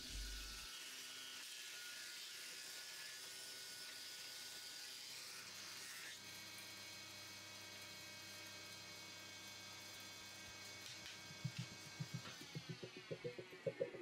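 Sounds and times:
machine humming: 11.1 - 14.0.

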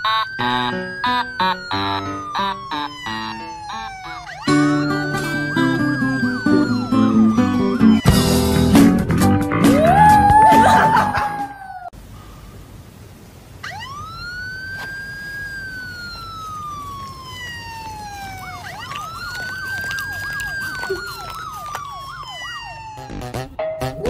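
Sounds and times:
siren wailing: 0.0 - 8.6, 9.7 - 11.9, 13.6 - 23.4
warbling siren: 0.0 - 8.6, 13.6 - 23.4.

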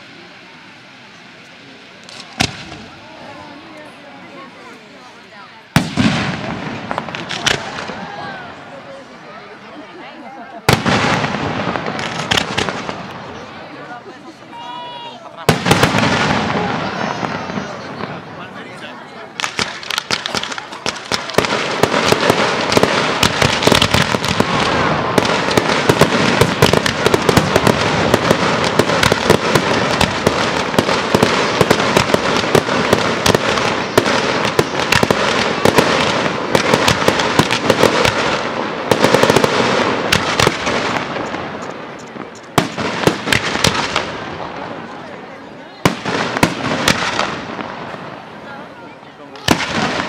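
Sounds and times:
firework shells bursting: 19.4 - 44.4.

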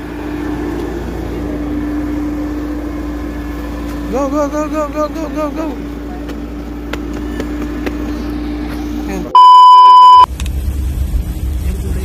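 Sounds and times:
rough low engine rumble: 0.0 - 9.4, 10.0 - 12.0
car engine and road hum: 0.0 - 12.0
loud electronic beep: 9.4 - 10.3.

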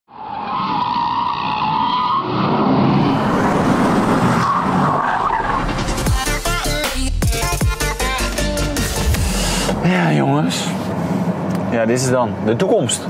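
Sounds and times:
car tyres squealing: 0.1 - 6.1
electronic music with deep bass: 5.6 - 9.8.

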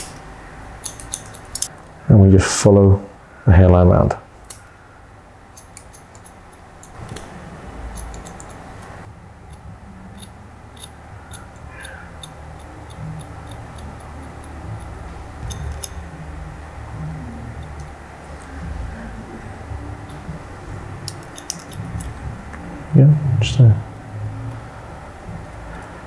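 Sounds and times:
scissors snipping hair: 0.8 - 1.8, 4.4 - 4.7, 5.6 - 7.3, 7.9 - 8.9, 9.5 - 16.1, 17.5 - 18.6, 20.0 - 22.6
low rumble: 13.6 - 26.0.

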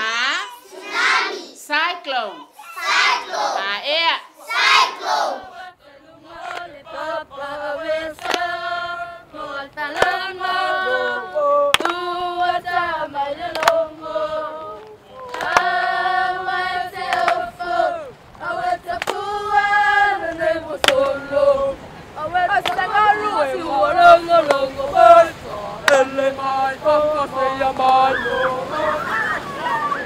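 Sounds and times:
children's choir singing: 0.0 - 1.6, 2.2 - 30.0.

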